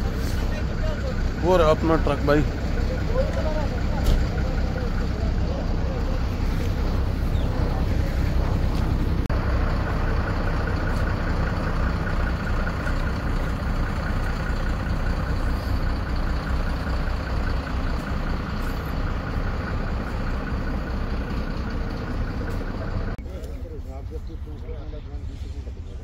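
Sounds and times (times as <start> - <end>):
truck engine idling: 0.0 - 26.0.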